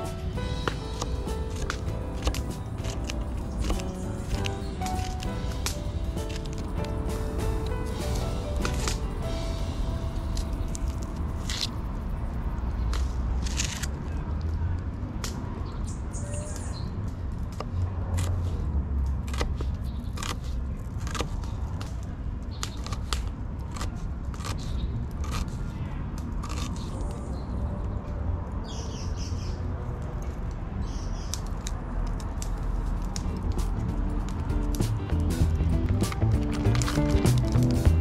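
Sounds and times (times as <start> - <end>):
steady low rumble: 0.0 - 15.5, 31.7 - 38.0.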